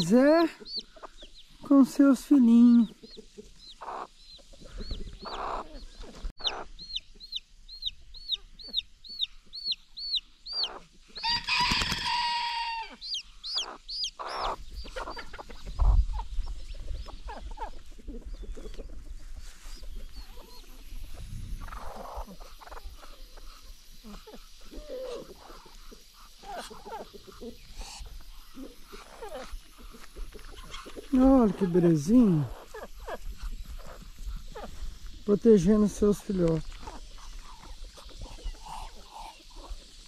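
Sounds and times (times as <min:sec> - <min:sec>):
chicks peeping: 0:00.0 - 0:12.3, 0:12.9 - 0:40.0
harsh chicken call: 0:11.2 - 0:13.0
hen clucking low: 0:19.9 - 0:34.8.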